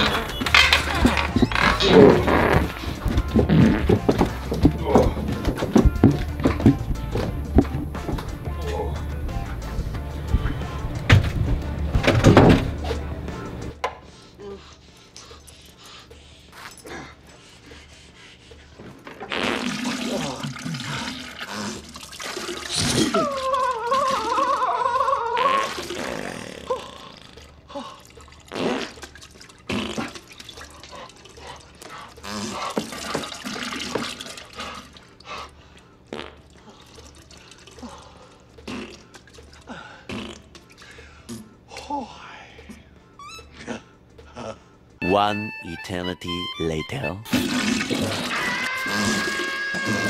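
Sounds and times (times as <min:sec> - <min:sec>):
toilet water rushing and splashing: 0:19.3 - 0:23.3, 0:28.1 - 0:35.0, 0:47.3 - 0:50.0
liquid splashing and dripping: 0:19.6 - 0:24.6, 0:27.3 - 0:41.2.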